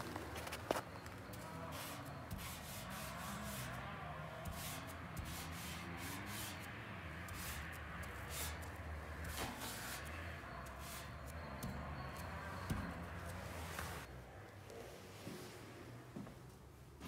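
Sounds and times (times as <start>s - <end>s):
felt tip rubbing on sheet metal: 1.7s - 12.9s.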